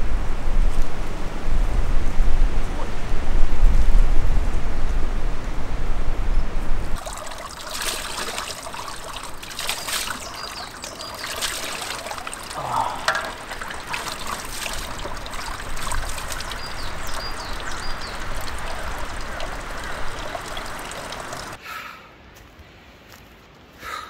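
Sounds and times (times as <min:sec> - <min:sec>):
water dripping: 0:06.8 - 0:21.6
water trickling from a spring tap: 0:07.0 - 0:21.6.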